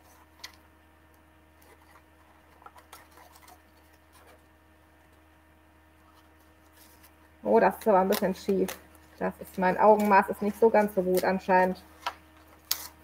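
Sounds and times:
tape and paper crackling: 0.0s - 5.2s, 6.0s - 13.0s
faint steady hum: 0.0s - 13.0s.

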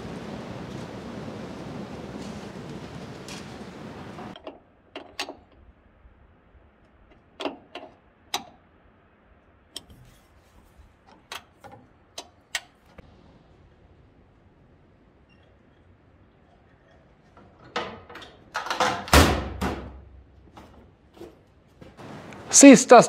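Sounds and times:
steady rushing noise: 0.0s - 4.4s.

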